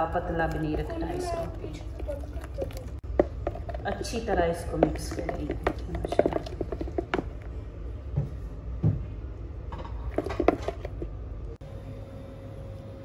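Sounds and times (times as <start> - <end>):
utensil knocking against bowl: 2.7 - 7.4.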